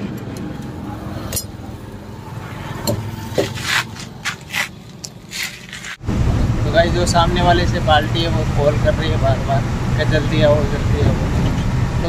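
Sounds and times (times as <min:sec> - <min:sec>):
tool scraping stones from tyre: 0:03.2 - 0:06.0.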